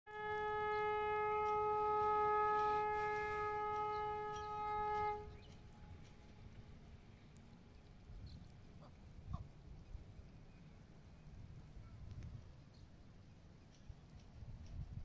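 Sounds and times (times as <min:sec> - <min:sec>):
train horn blast: 0:00.1 - 0:06.0.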